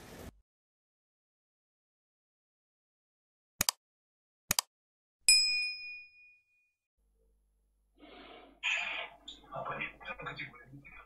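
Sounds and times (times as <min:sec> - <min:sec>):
mouse clicks: 0:03.6 - 0:03.8
notification bell ding: 0:05.3 - 0:06.7.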